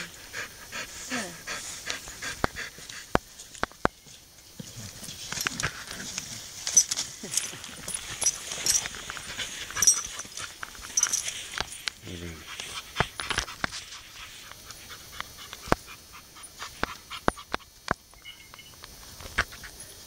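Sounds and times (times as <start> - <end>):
dog panting: 0.0 - 3.2, 8.2 - 11.2, 12.2 - 17.7
metal chain clicking: 6.6 - 11.9.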